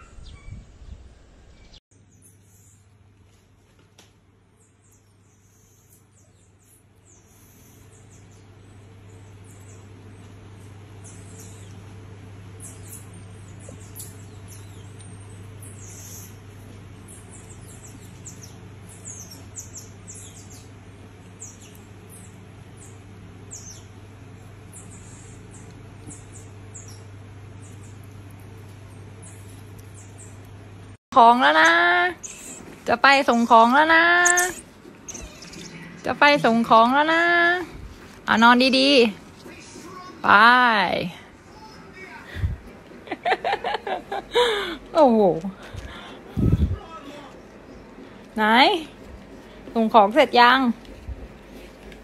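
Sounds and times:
monkey chirping: 31.6 - 32.8, 33.4 - 36.0.

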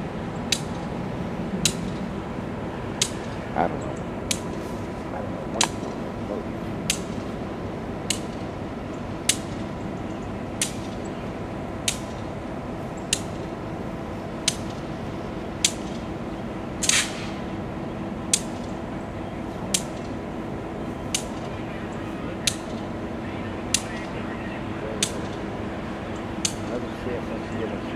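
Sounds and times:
distant diesel locomotive idling: 0.0 - 27.9
sharp ticks: 0.5 - 0.8, 3.0 - 3.4, 11.8 - 12.3, 13.0 - 13.5, 14.4 - 14.8, 15.6 - 16.0, 26.4 - 26.8
short hiss: 16.8 - 17.4.

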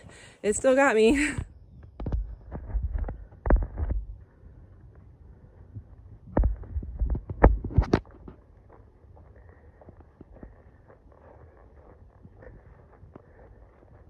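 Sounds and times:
faint outdoor background: 0.0 - 14.0.

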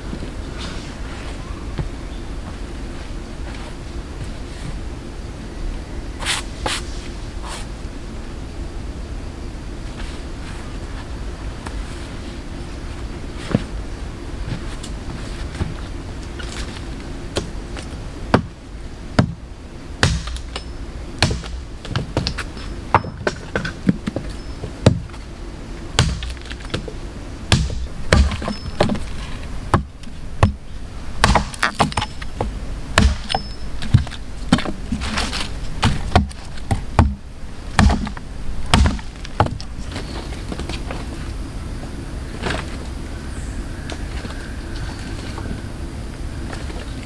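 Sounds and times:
hatchet striking ground and sticks: 20.0 - 25.2, 26.0 - 26.9, 27.5 - 29.1, 29.7 - 30.6, 31.2 - 39.6.

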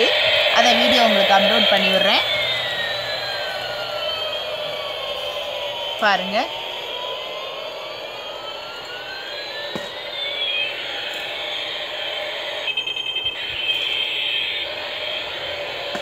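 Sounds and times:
rapid electronic pulses: 0.0 - 16.0
toy helicopter whir: 0.0 - 16.0
toy siren-like electronic tones: 0.0 - 16.0.

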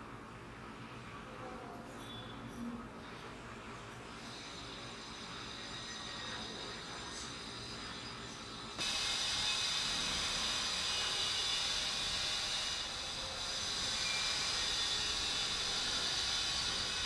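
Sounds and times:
steady hiss: 8.8 - 17.0.

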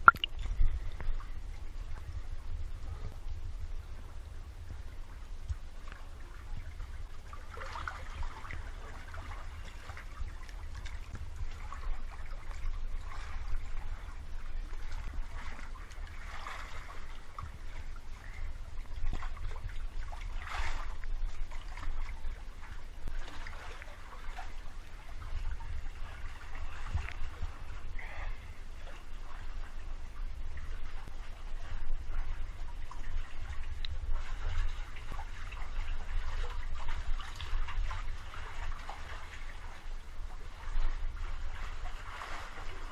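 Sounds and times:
water sloshing and splashing: 0.0 - 42.9.

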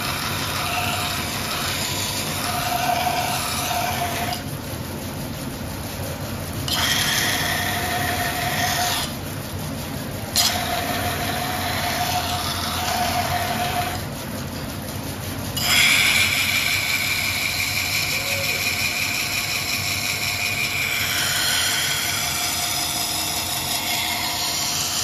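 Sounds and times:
grinding wheel humming: 0.0 - 25.0.

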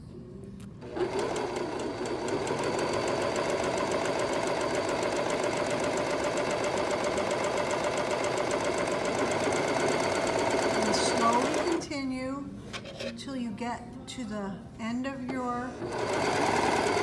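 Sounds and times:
overlock machine stitching: 0.8 - 11.8, 15.8 - 17.0.

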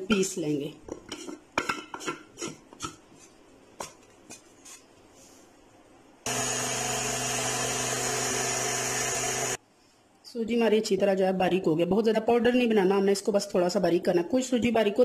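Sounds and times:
mixer grinder motor running: 6.3 - 9.6.

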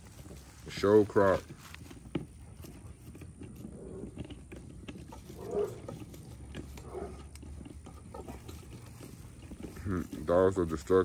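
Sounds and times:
puppies moving and chewing: 0.0 - 11.0
small clicks and rustles: 0.0 - 11.0
puppy vocal sounds: 5.1 - 9.9.

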